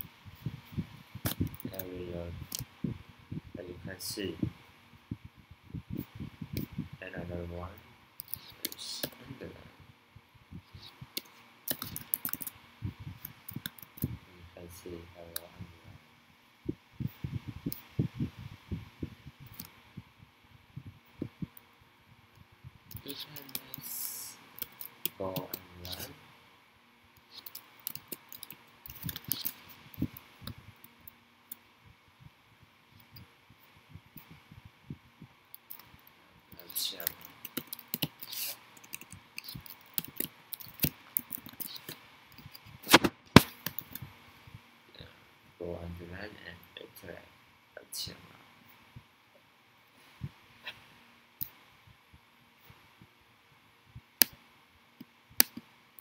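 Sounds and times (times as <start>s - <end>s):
mouse clicks: 10.7s - 12.5s, 27.3s - 30.6s, 36.6s - 44.0s
laptop keyboard typing: 11.2s - 12.5s, 22.9s - 26.1s, 27.3s - 30.2s, 36.6s - 42.6s, 43.4s - 44.0s
keyboard keystrokes: 37.0s - 42.0s.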